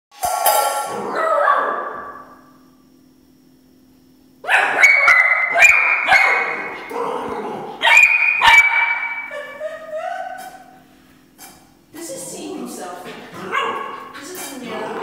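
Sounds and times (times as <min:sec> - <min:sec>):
puppy barking: 0:04.4 - 0:06.8, 0:07.8 - 0:10.7, 0:13.4 - 0:14.5.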